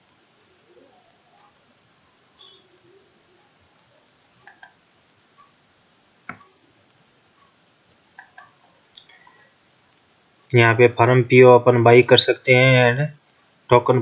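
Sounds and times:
computer mouse clicking: 4.4s - 4.8s, 6.3s - 6.6s, 8.1s - 9.4s.

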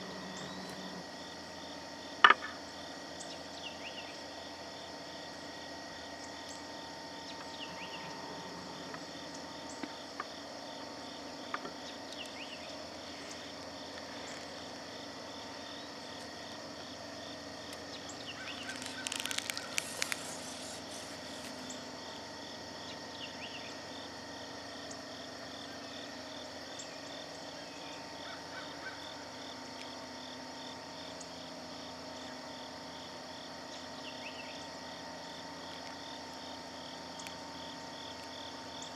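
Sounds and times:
crickets and insects chirping: 0.0s - 38.9s
sharp clicks: 18.5s - 20.3s
close rustling: 18.5s - 21.7s.

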